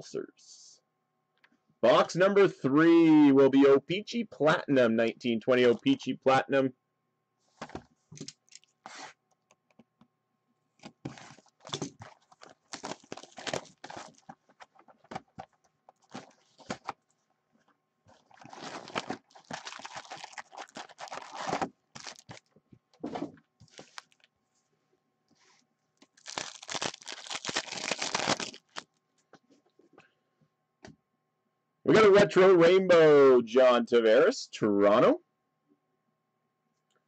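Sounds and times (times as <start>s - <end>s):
packaging crinkling and rustling: 10.8s - 22.6s, 23.6s - 24.3s, 26.0s - 29.0s.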